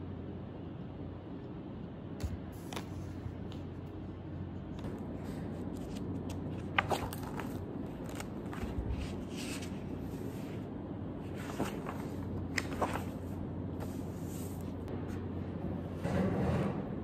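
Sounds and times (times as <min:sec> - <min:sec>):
steady low hum: 0:00.0 - 0:17.0
notebook pages rustling: 0:04.8 - 0:14.9.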